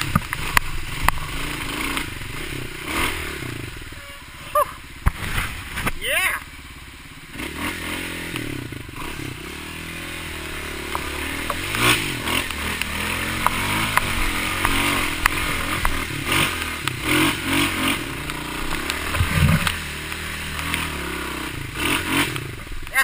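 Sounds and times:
dirt bike engine revving: 0.0s - 23.0s
water splashing: 18.0s - 21.2s
heavy low thump: 18.7s - 19.9s.

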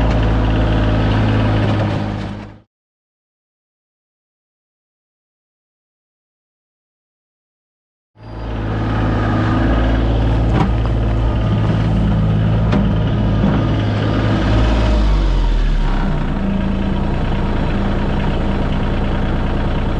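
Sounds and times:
tractor diesel engine running: 0.0s - 2.7s, 8.2s - 19.9s.

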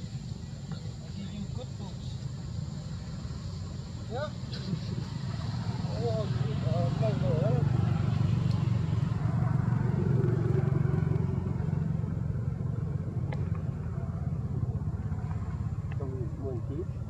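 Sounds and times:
motor engine running: 4.2s - 17.0s.

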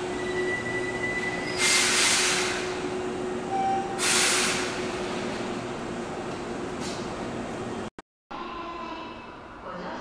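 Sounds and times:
train high squeal: 0.0s - 2.8s, 3.5s - 4.8s
compressed-air hiss: 1.6s - 2.7s, 4.0s - 4.8s
brief lower tone: 3.5s - 4.0s.

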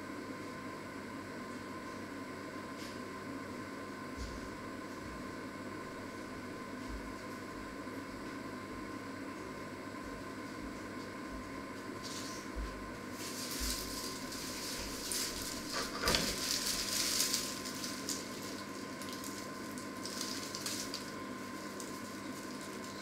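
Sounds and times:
steady electrical hum: 0.0s - 23.0s
plastic mesh bag rustling: 13.1s - 23.0s.

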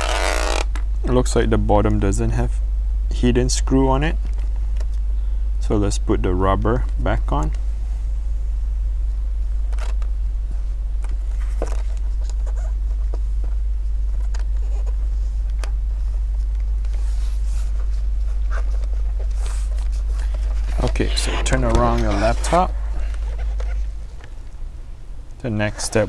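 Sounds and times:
low hum: 0.0s - 26.0s
faint rubbing: 19.3s - 24.0s.

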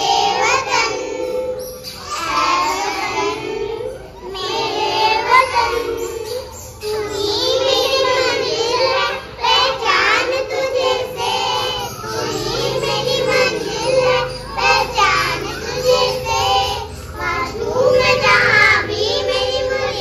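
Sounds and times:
children singing: 0.0s - 20.0s.

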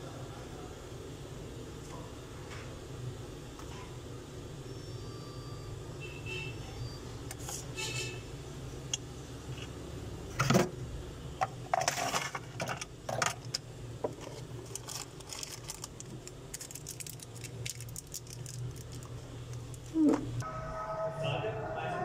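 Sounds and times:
small hard objects clattering: 11.7s - 13.6s, 14.2s - 20.0s.

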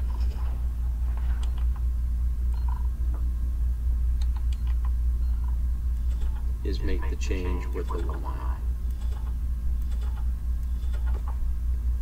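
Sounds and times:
low hum: 0.0s - 12.0s.

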